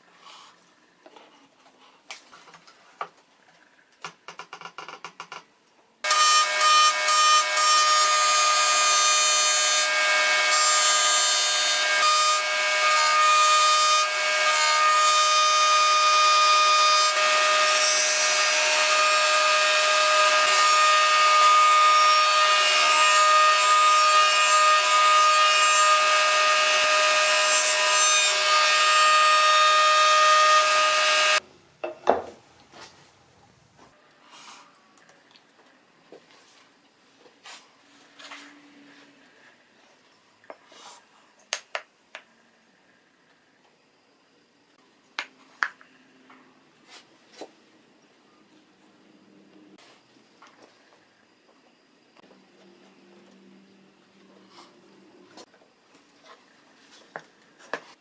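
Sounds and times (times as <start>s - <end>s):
router whining: 6.1s - 31.4s.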